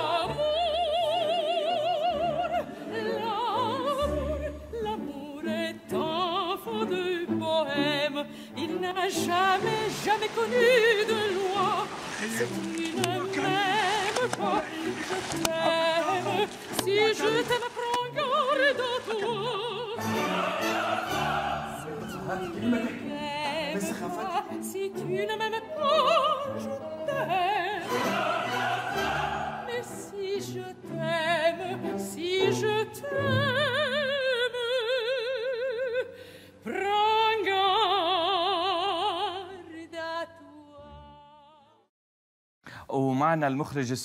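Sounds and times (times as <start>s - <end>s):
classical accompaniment: 0.0s - 34.5s
operatic singing with vibrato: 0.0s - 35.7s.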